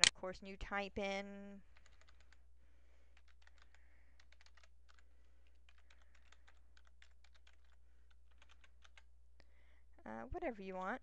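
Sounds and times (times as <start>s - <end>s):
keyboard typing clicks: 3.2s - 9.1s.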